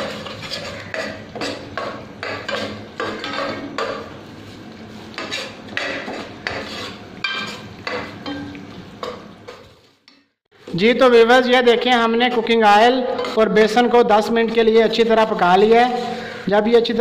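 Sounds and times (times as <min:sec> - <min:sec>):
metal ladle scraping saucepan: 0:00.0 - 0:04.2, 0:05.1 - 0:09.8, 0:13.0 - 0:13.7, 0:15.4 - 0:16.9
flour roasting in ghee: 0:00.0 - 0:17.0.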